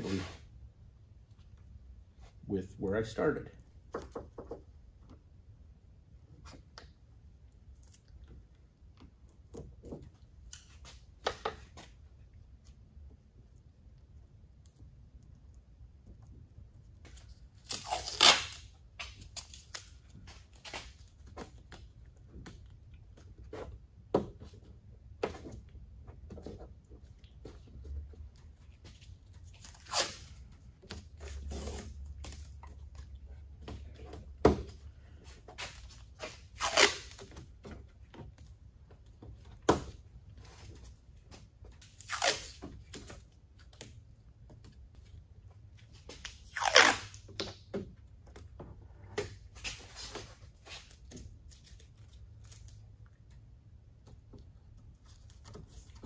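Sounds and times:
tape tearing off roll: 0:17.1 - 0:21.9, 0:29.6 - 0:32.6, 0:35.6 - 0:37.5, 0:41.8 - 0:43.2, 0:46.1 - 0:47.6.

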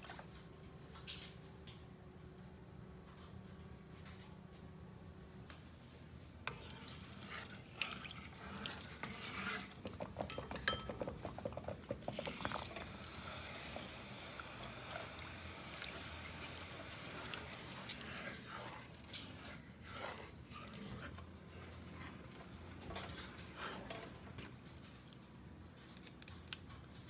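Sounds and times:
spatula scraping a pot: 0:06.4 - 0:25.0
cookware clinking: 0:10.1 - 0:11.6.

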